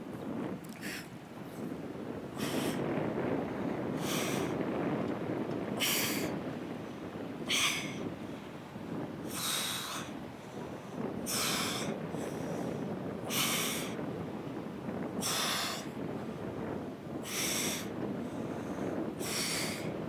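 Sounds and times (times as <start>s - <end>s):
woman exhaling forcefully: 0.8s - 1.1s, 2.4s - 2.8s, 5.8s - 6.3s, 7.5s - 8.0s, 11.3s - 11.9s, 15.2s - 15.9s, 19.2s - 19.9s.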